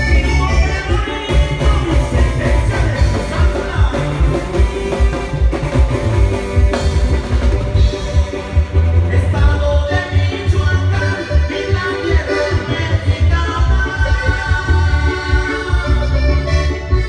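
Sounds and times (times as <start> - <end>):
person singing: 0.0 - 5.7, 8.6 - 16.9
drum kit beat: 0.0 - 11.3
bass guitar: 0.0 - 17.0
keyboard: 0.0 - 17.0.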